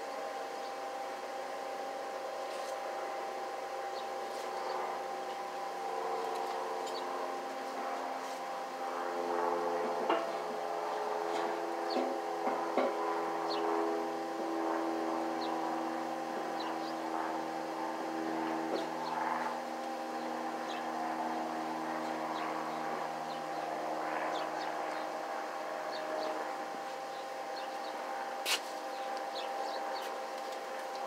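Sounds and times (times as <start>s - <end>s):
small engine humming: 0.0s - 31.0s
birds chirping: 3.9s - 4.9s, 6.1s - 7.3s, 10.5s - 12.2s, 13.4s - 14.0s, 14.6s - 17.6s, 18.3s - 25.2s, 25.8s - 26.4s, 27.0s - 28.2s, 28.8s - 31.0s.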